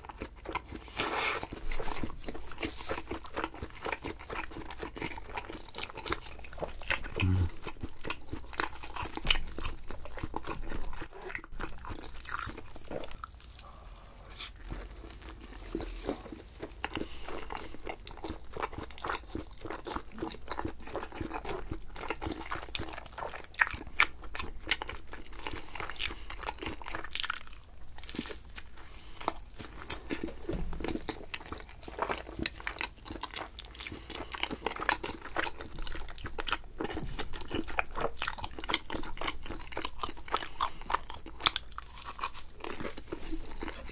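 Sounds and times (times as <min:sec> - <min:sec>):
person chewing and crunching food: 0:00.0 - 0:43.9
wet mouth sounds: 0:06.9 - 0:08.1.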